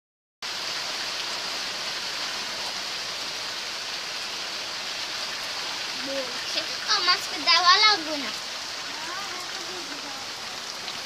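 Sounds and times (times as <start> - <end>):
steady rain: 0.4 - 11.0
water dripping off roof: 0.4 - 11.0.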